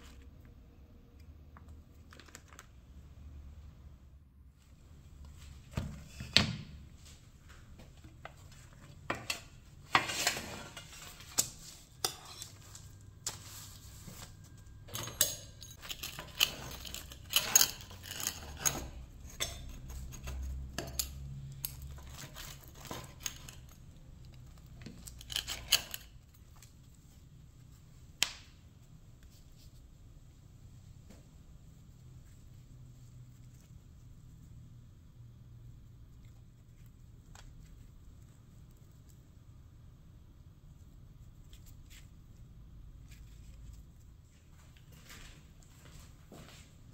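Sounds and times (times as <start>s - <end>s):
metal utensils clicking and knocking: 14.8s - 23.8s, 24.8s - 26.2s.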